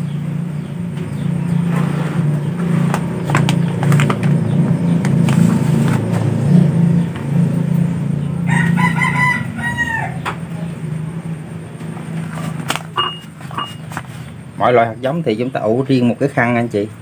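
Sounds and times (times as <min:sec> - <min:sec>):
steady low hum: 0:00.0 - 0:17.0
rooster crowing: 0:08.4 - 0:10.8.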